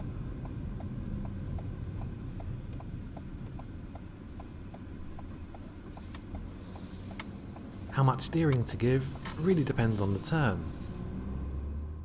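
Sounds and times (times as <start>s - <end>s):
engine hum: 0.0s - 12.0s
road noise inside car: 0.0s - 12.0s
car turn indicator ticking: 0.2s - 7.7s, 8.3s - 8.8s.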